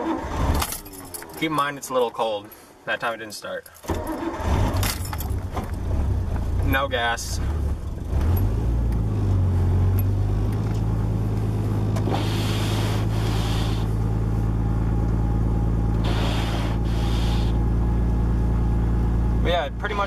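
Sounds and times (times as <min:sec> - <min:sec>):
car engine idling: 0:04.0 - 0:20.0
hiss: 0:12.0 - 0:13.9, 0:16.0 - 0:17.6.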